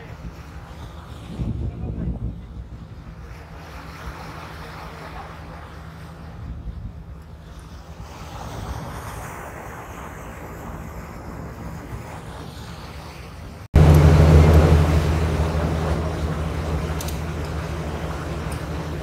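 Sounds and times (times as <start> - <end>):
water noise: 0.0 - 19.0
wind: 0.0 - 19.0
ship engine drone: 10.6 - 19.0.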